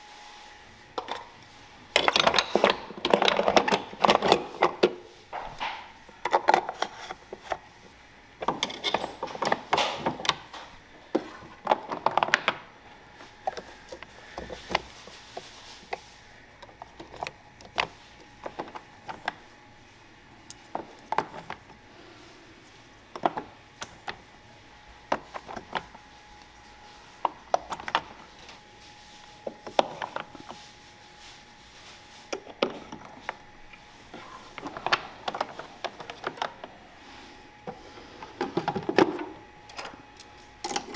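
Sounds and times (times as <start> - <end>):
hard plastic parts clattering: 1.9 - 7.6, 8.4 - 12.7, 34.5 - 36.7, 37.7 - 39.9.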